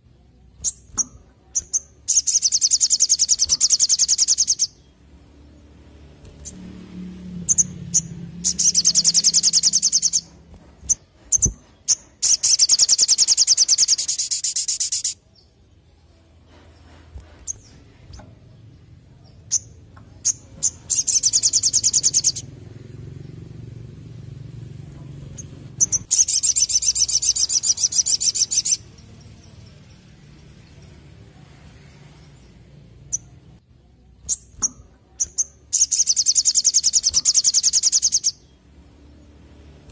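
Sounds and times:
bird sharp chips: 0:00.5 - 0:04.9, 0:06.1 - 0:06.8, 0:07.4 - 0:15.2, 0:16.6 - 0:18.5, 0:25.3 - 0:29.1, 0:34.2 - 0:38.5
bird high-pitched trills: 0:00.6 - 0:05.0, 0:07.4 - 0:15.4, 0:19.4 - 0:22.5, 0:25.3 - 0:29.8, 0:34.2 - 0:38.6.

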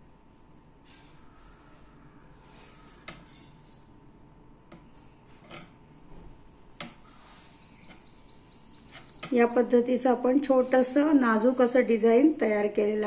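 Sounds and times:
high bird chirps: 0:07.0 - 0:09.6.

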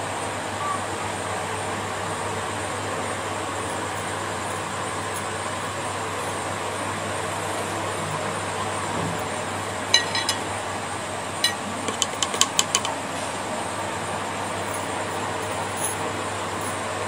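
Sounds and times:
background hum and hiss: 0:00.0 - 0:17.0
paintbrush tapping jar rim: 0:11.4 - 0:13.0.

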